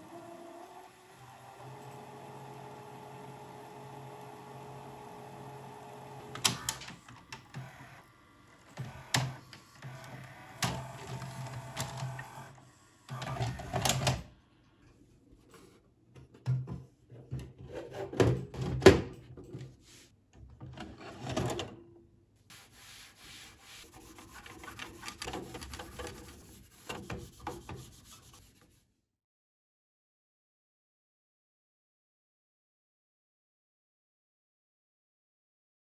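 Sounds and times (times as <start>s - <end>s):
vcr motor hum: 0.0s - 14.0s
cloth rubbing on plastic: 22.5s - 28.9s.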